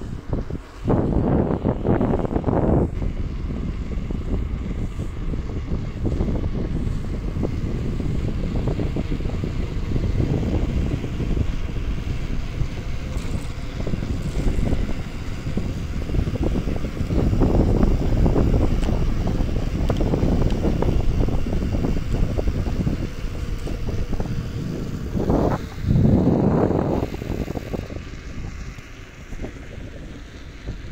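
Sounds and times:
wind buffeting microphone: 0.0 - 30.9.

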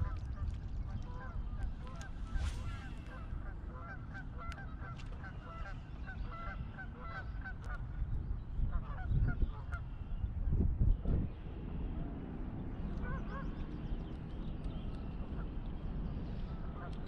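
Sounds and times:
wind rumble on microphone: 0.0 - 17.0
geese honking: 1.1 - 7.6.

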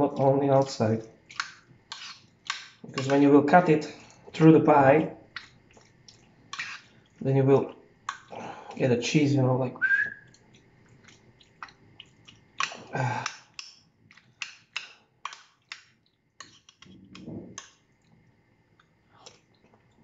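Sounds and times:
spoon scraping baking tray: 1.9 - 3.3, 6.5 - 6.9, 16.4 - 17.7.

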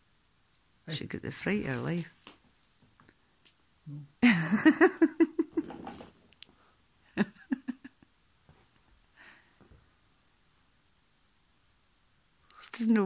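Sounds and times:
person laughing: 4.2 - 6.0, 7.1 - 8.0.

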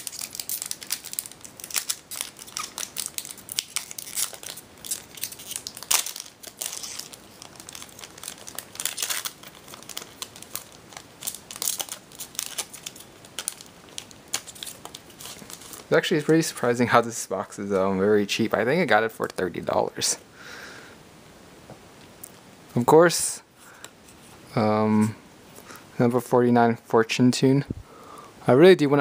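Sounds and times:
foil wrapper crinkling and tearing: 0.0 - 16.8.

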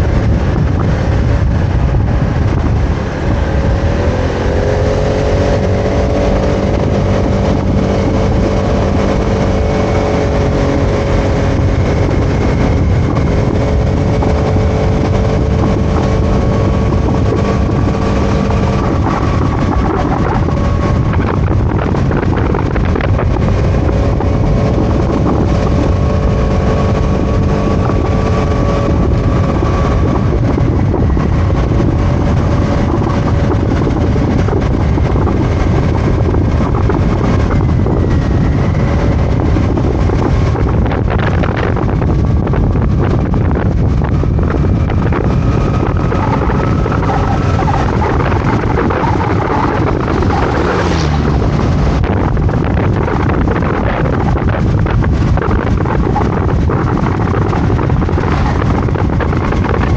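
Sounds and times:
scooter engine drone: 0.0 - 59.9
wind buffeting microphone: 0.0 - 59.9.

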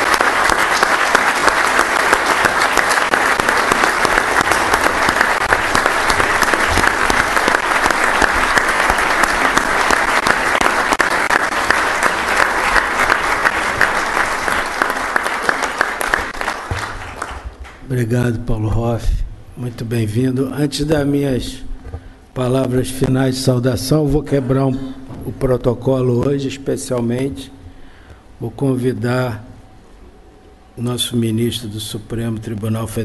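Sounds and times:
audience applauding: 0.0 - 17.9.

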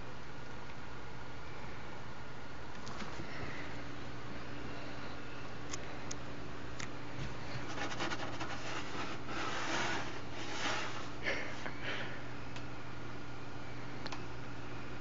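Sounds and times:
steady low hum: 0.0 - 15.0
rustling and scratching on towel: 7.5 - 11.1.

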